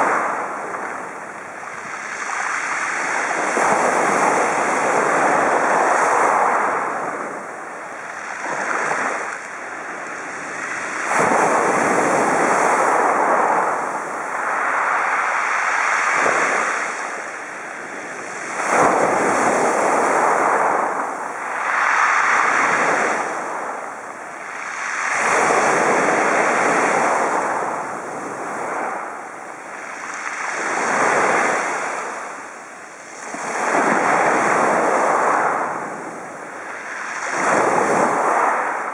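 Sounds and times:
small waves breaking on pebbles: 8.2 - 17.2.

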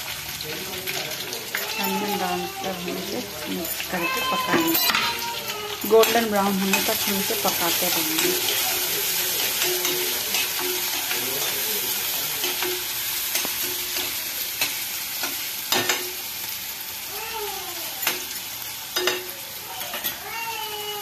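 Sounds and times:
onions sizzling in hot oil: 0.0 - 21.0
metal spatula scraping pan: 1.5 - 16.1.

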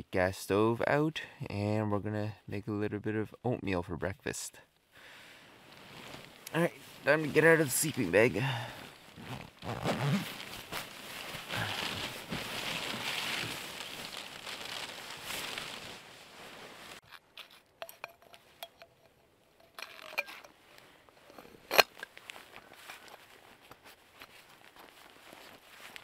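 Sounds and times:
sleeping bag rustling: 5.5 - 17.6, 20.2 - 26.0
small clicks and clinks: 17.3 - 20.6.

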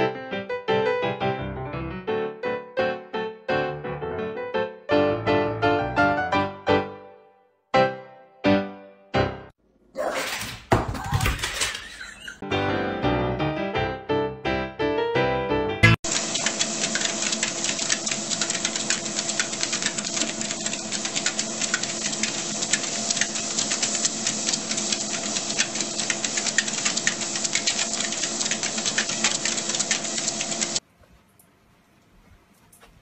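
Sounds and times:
fast irregular clicking: 16.1 - 30.8
treadmill motor hum: 16.1 - 30.8.

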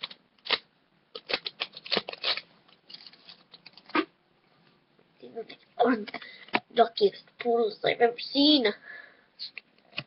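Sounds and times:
foil wrapper tearing and crackling: 0.0 - 3.9.

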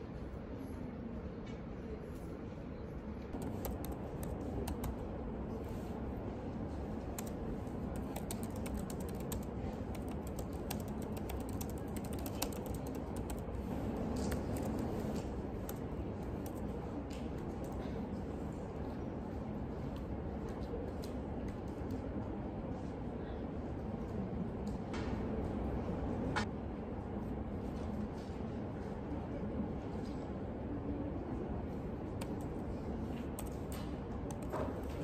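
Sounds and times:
low background noise: 0.0 - 35.0
typing on laptop keyboard: 3.4 - 5.1, 7.0 - 17.8, 32.1 - 35.0.

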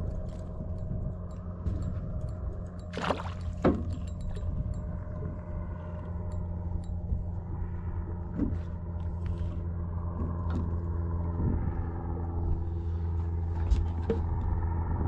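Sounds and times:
water lapping against boat hull: 0.0 - 7.4
steady low drone: 0.0 - 15.0.

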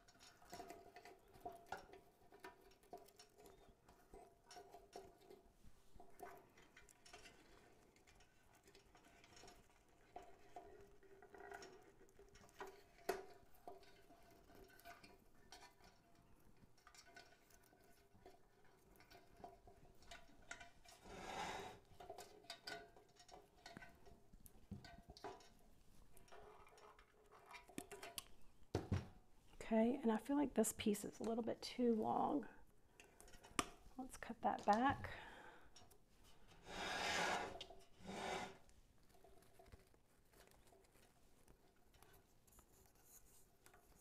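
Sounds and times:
wire twisting rustles: 35.8 - 44.0.

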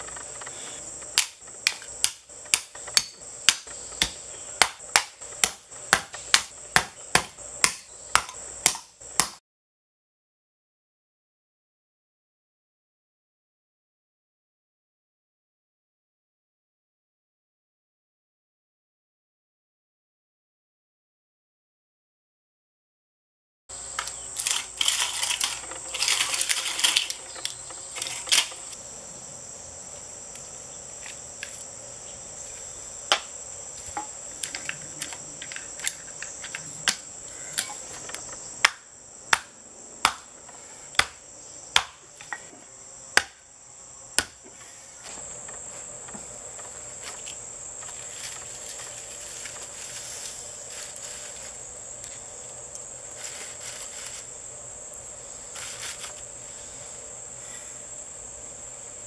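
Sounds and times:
high-pitched insect chorus: 0.0 - 9.2, 23.7 - 59.0
hammer striking steel core: 1.2 - 9.4
metal clipping and rustling: 24.4 - 28.8.

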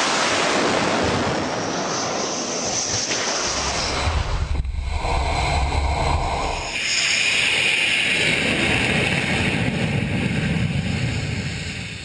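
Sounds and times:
jet engine hiss and whine: 0.0 - 12.0
deep rumble: 3.4 - 7.6.

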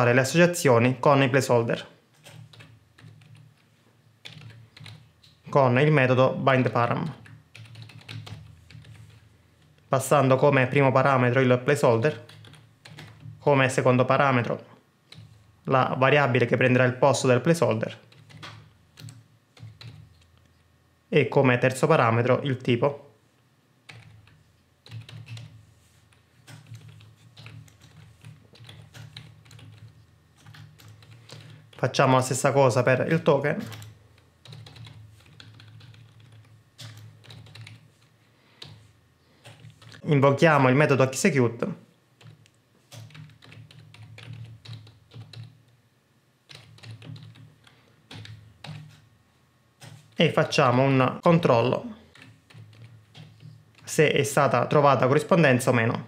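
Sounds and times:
typing on computer keyboard: 2.1 - 5.5, 6.6 - 9.9, 12.0 - 13.4, 15.1 - 15.4, 17.9 - 20.4, 23.9 - 31.9, 33.6 - 40.0, 42.2 - 45.8, 46.4 - 49.0, 52.1 - 53.9.

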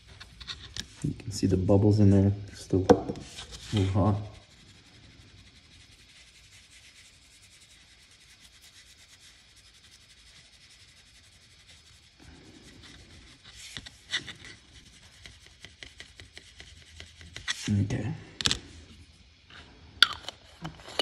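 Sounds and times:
cotton swab scrubbing circuit board: 3.3 - 17.8.

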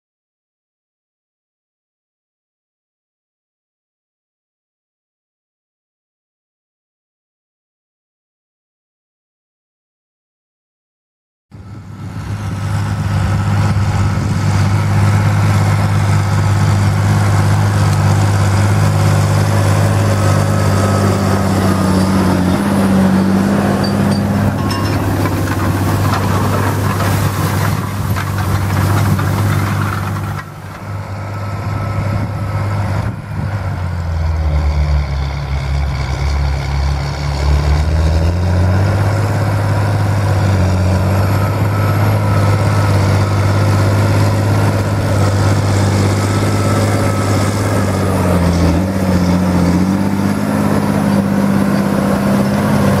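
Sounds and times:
tractor diesel engine under load: 11.5 - 53.0.

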